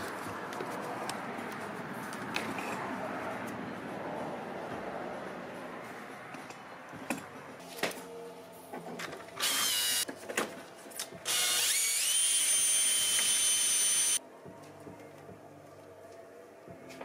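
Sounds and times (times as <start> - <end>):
cordless drill whining: 9.4 - 10.0, 11.3 - 14.2.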